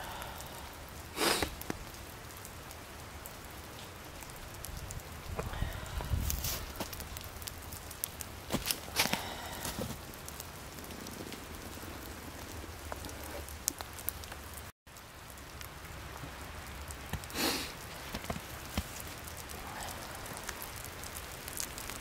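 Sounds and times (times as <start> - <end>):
drops pattering in forest: 0.1 - 22.0.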